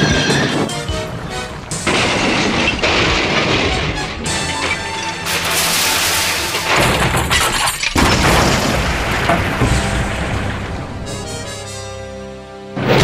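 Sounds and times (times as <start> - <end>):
background music: 0.0 - 7.4, 8.2 - 13.0
smashing shattering crash hits: 5.2 - 10.9.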